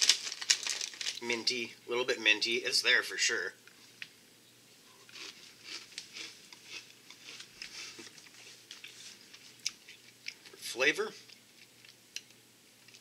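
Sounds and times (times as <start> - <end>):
person chewing crunchy snack: 5.1 - 10.4.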